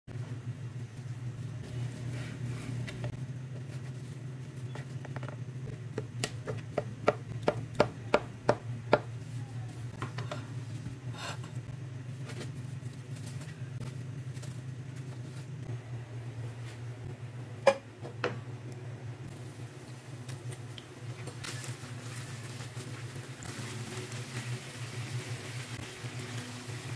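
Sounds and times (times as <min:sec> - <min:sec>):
steady low hum: 0:00.1 - 0:26.9
knife chopping on plastic board: 0:05.9 - 0:09.1.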